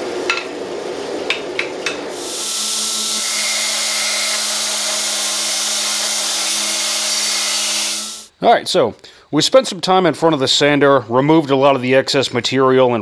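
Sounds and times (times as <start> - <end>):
belt grinder grinding steel: 2.2 - 8.3.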